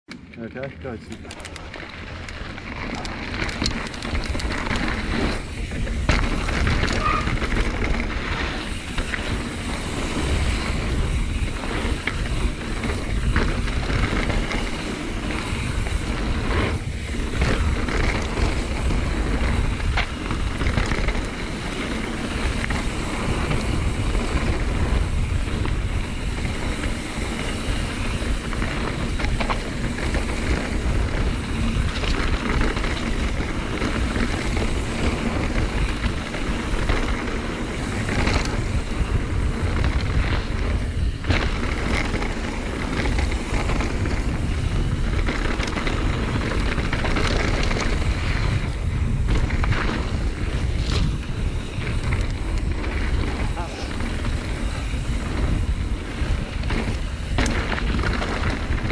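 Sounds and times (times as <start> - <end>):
bike clicks and knocks: 0.1 - 58.9
tyres rolling on dirt: 0.4 - 58.9
wind rushing over microphone: 0.5 - 58.9.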